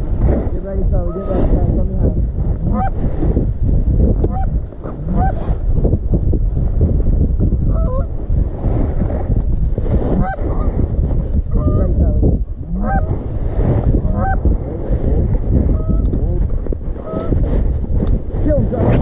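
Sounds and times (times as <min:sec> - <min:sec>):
low rumble: 0:00.0 - 0:19.0
geese honking: 0:02.6 - 0:03.0, 0:04.3 - 0:05.4, 0:07.7 - 0:08.1, 0:12.7 - 0:13.2, 0:14.1 - 0:14.4.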